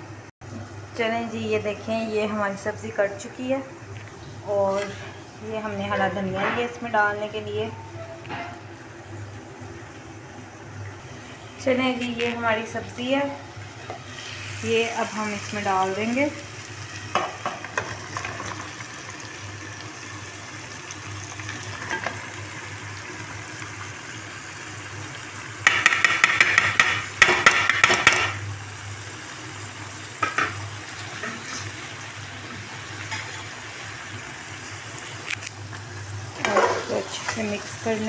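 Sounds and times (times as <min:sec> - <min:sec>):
low sizzle: 0:00.0 - 0:38.0.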